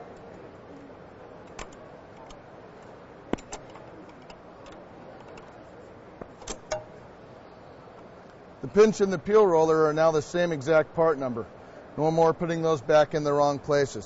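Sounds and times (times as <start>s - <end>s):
steady low hiss: 0.0s - 14.0s
metallic clicks of roller assembly: 1.4s - 5.6s.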